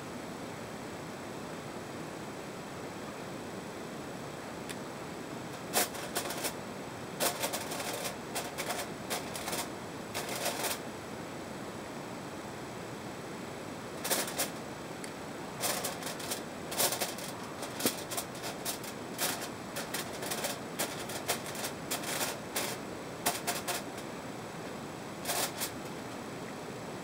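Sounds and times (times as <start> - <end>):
marker scratching on foil: 5.6 - 6.6, 7.2 - 10.8, 14.0 - 14.6, 15.6 - 24.0, 25.2 - 25.8
foil crinkling: 7.2 - 10.8, 15.6 - 24.0.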